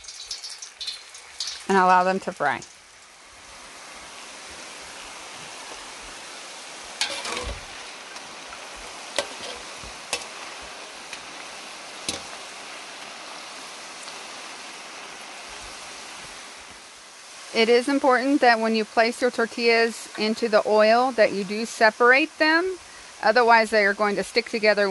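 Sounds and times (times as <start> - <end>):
chips sizzling in hot oil: 0.0 - 24.9
metal skimmer clinking on pan: 7.0 - 7.6.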